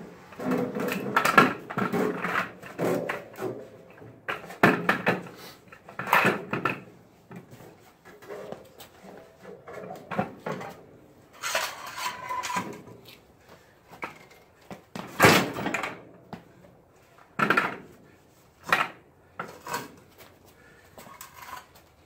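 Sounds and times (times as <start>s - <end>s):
metal scraping: 11.3s - 12.9s.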